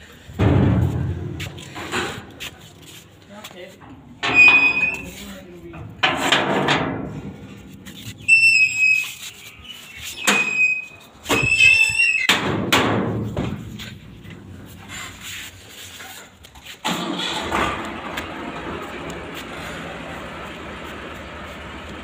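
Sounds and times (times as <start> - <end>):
metal gate clanking and scraping: 0.4 - 2.4, 3.8 - 15.3
metal gate squealing: 4.2 - 5.2, 8.0 - 12.4.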